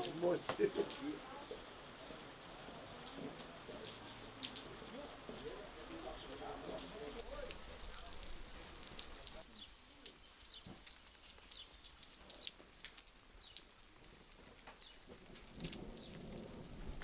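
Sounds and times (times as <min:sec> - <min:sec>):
light rain drops: 0:00.0 - 0:17.0.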